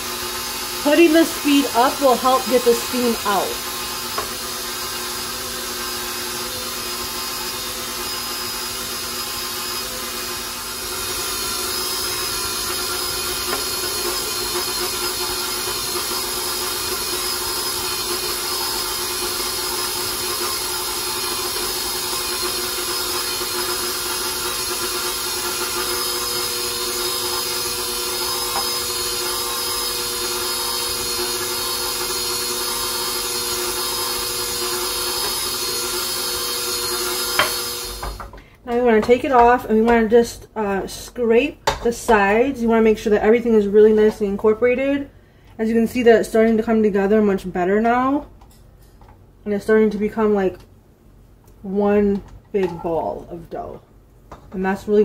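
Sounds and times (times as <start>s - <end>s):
stand mixer motor running: 0.0s - 38.3s.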